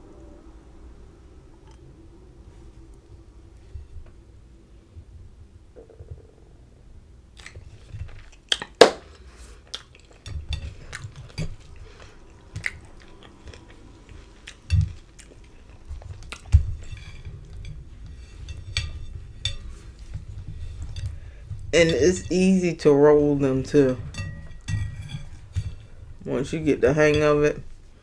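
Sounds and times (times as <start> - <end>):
chewing: 7.4 - 21.7.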